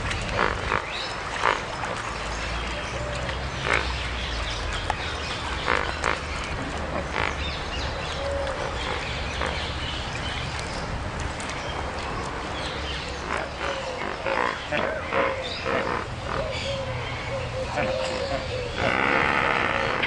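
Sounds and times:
flamingos honking and grunting: 0:05.6 - 0:07.5, 0:08.3 - 0:09.8, 0:13.1 - 0:20.0.

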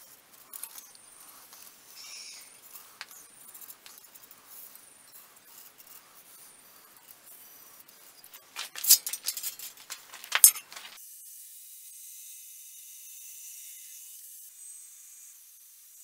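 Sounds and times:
metal clinks and scrapes on anvil: 0:08.2 - 0:11.0.

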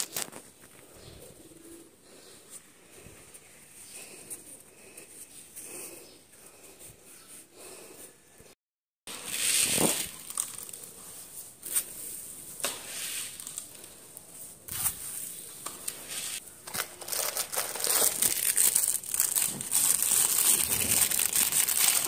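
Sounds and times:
plastic crinkling: 0:00.0 - 0:00.9, 0:09.3 - 0:11.9, 0:16.6 - 0:22.0.

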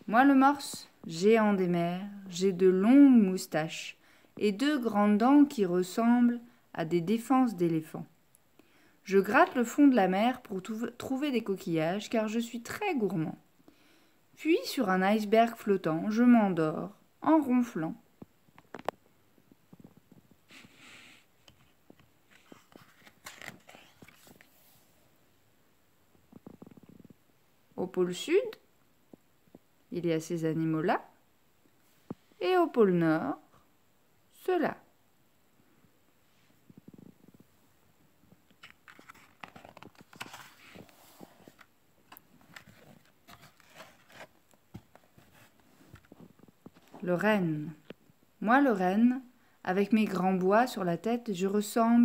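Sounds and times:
book pages turning: 0:21.4 - 0:24.8, 0:38.5 - 0:47.1.

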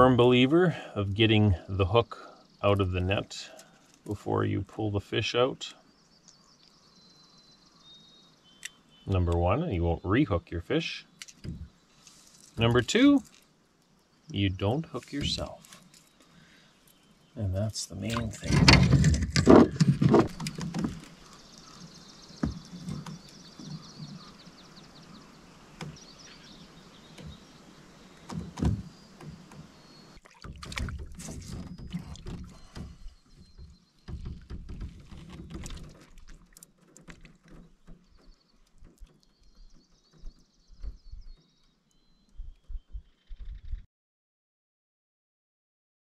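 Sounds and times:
knocks and bumps in aluminum boat: 0:18.1 - 0:24.3, 0:28.2 - 0:41.6.

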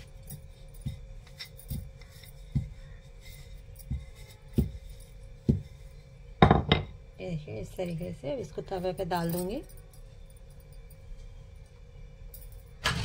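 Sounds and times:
rolling pin knocking on board: 0:06.4 - 0:06.9.

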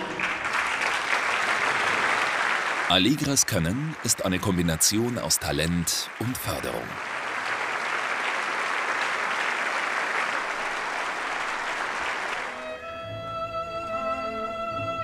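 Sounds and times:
audience applauding: 0:00.0 - 0:12.8
violin and string orchestra: 0:12.5 - 0:15.0.

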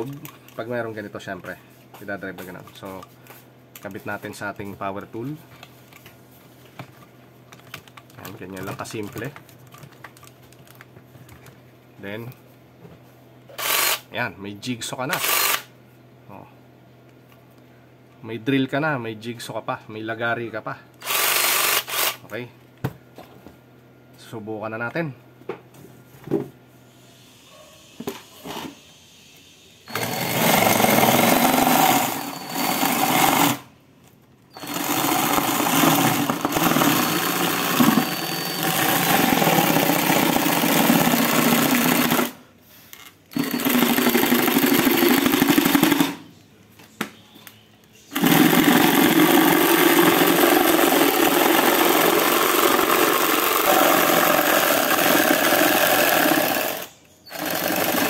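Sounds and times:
jigsaw blade sawing wood: 0:21.0 - 0:22.2, 0:29.9 - 0:33.6, 0:34.6 - 0:42.4, 0:48.2 - 0:58.0.

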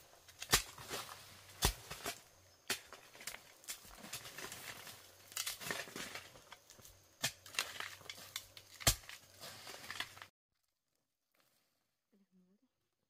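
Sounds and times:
digging tool scraping soil: 0:07.3 - 0:10.3.

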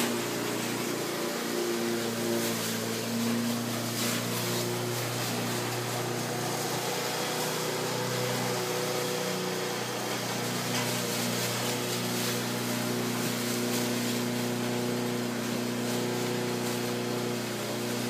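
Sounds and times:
engine hum: 0:00.0 - 0:18.0.

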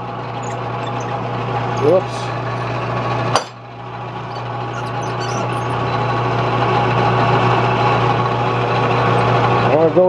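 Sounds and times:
metal lathe running: 0:00.0 - 0:10.0.

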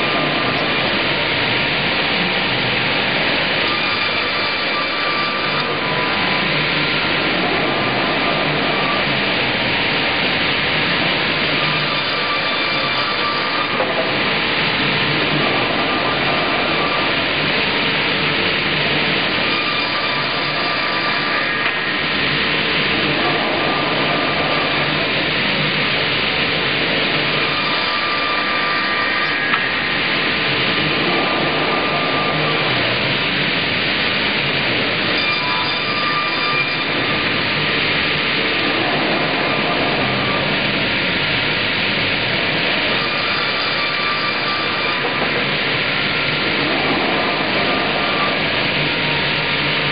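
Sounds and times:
circular saw cutting timber: 0:19.2 - 0:25.2.

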